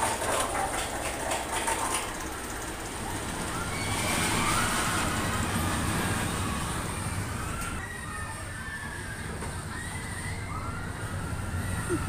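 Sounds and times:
roller coaster train rumbling: 0.0 - 12.0
high squeals: 3.3 - 12.0.

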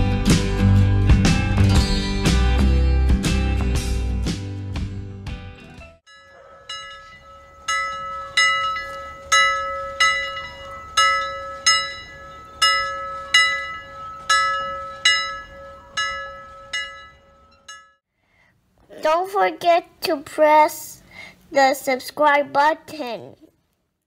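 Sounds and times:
alarm bell striking: 6.1 - 18.0.

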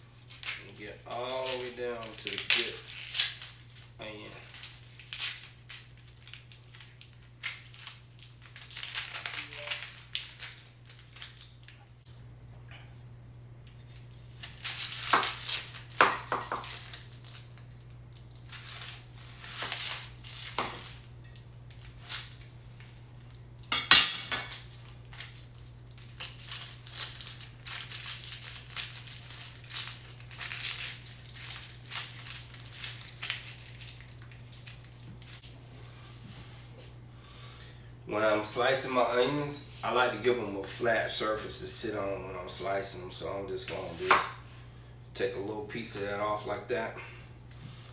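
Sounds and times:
onion skins crackling: 0.0 - 12.0, 13.3 - 35.5.

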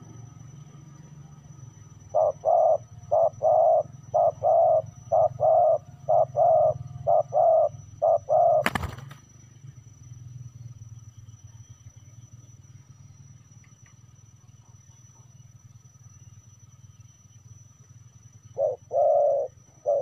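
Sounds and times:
dove cooing: 2.0 - 9.0, 18.5 - 20.0.

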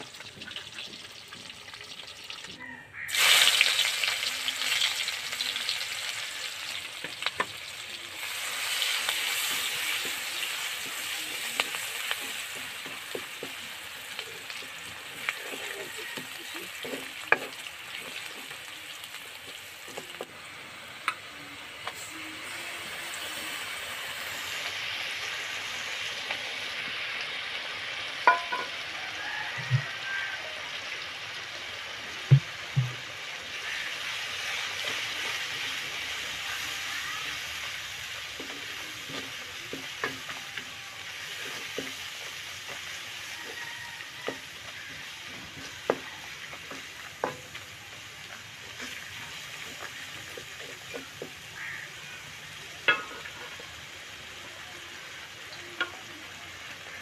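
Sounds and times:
onions sizzling in hot oil: 0.0 - 57.0
spatula knocking against pan: 28.3 - 28.7.

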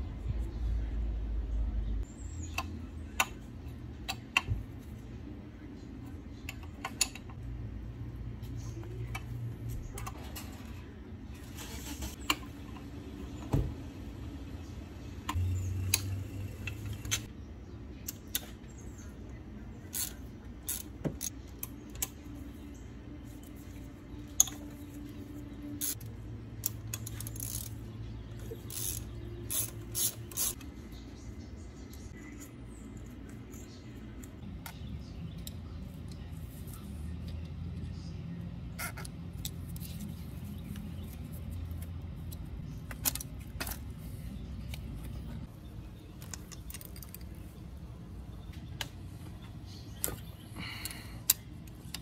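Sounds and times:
ratchet wrench clicking: 25.8 - 27.8, 28.7 - 30.6.

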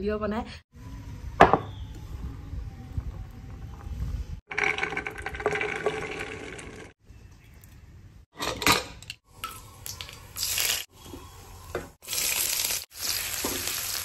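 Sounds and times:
oil sizzling: 9.3 - 14.0.

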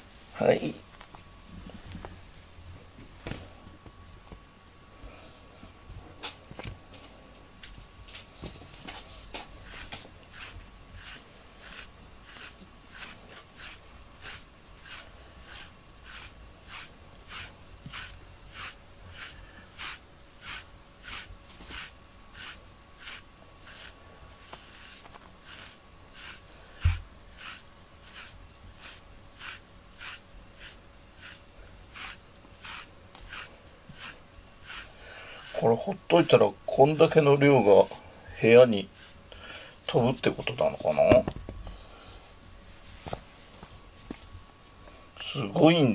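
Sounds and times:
brush raking through cat fur: 8.3 - 41.2.

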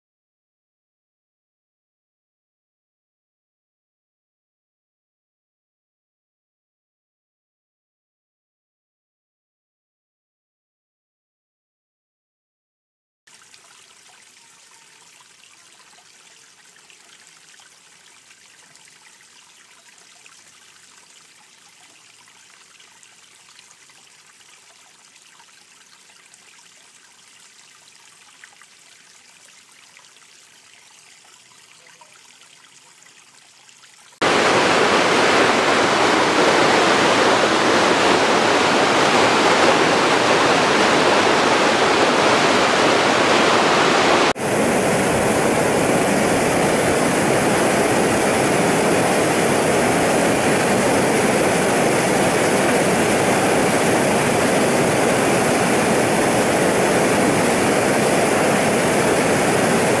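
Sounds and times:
creek trickling over rocks: 13.3 - 34.5
churning white water: 34.2 - 60.0
loud rush of water: 34.2 - 60.0.

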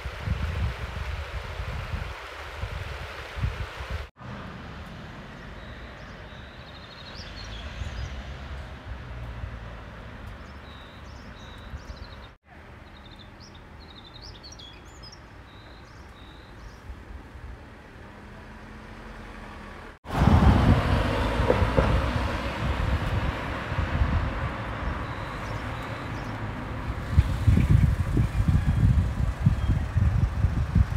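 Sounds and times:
wind buffeting microphone: 0.0 - 4.1, 20.0 - 30.9
wind rumble: 0.0 - 5.6, 20.0 - 30.9
distant traffic: 4.2 - 30.9
small birds chirping: 5.5 - 8.7, 10.2 - 17.0, 24.8 - 26.4.

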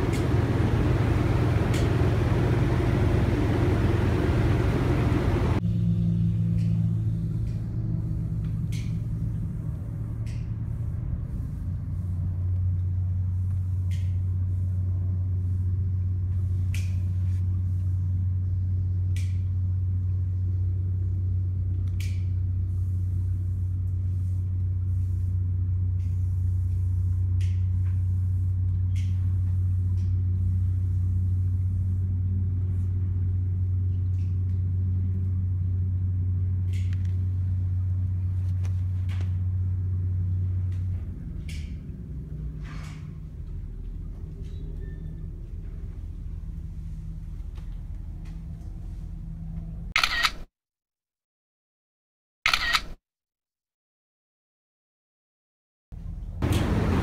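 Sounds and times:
loud rushing noise: 0.0 - 5.6, 56.4 - 57.0
low machine hum: 0.0 - 50.0, 56.0 - 57.0.

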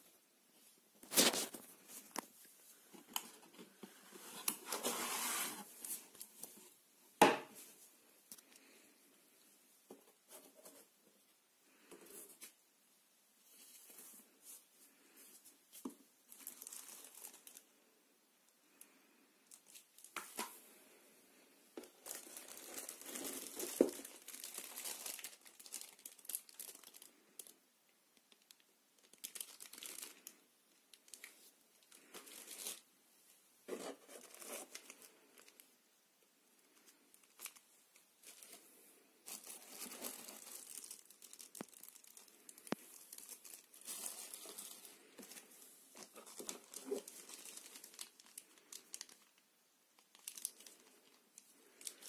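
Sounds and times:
plastic wrapping crinkling: 1.0 - 6.8, 13.5 - 17.7, 21.8 - 27.6, 28.2 - 32.9, 33.7 - 35.7, 36.7 - 52.0.

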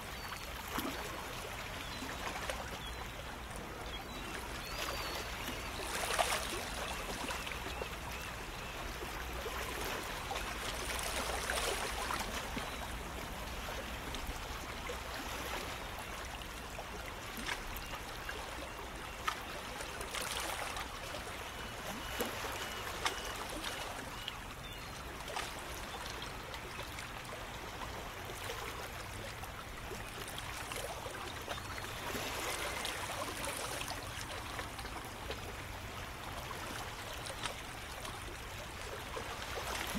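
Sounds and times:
small water splashes: 0.0 - 39.9
small waves lapping on rocks: 0.1 - 39.9.

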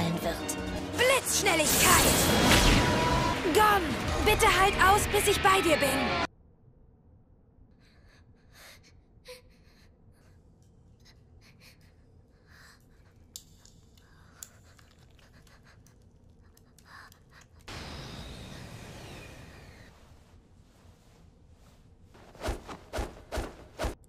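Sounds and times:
small clicks: 13.2 - 17.8.

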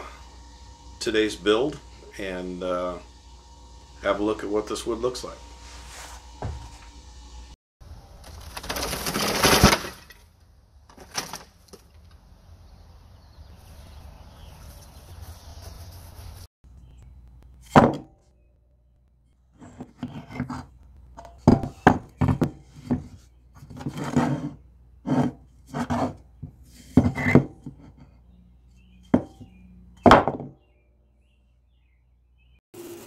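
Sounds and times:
wood scraping: 8.2 - 10.2, 19.5 - 28.2.

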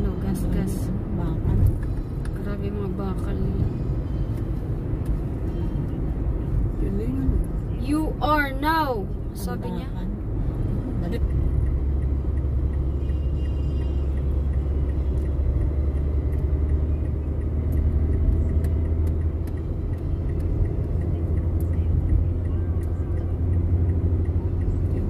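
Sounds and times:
car engine and tyre noise: 0.0 - 25.0.

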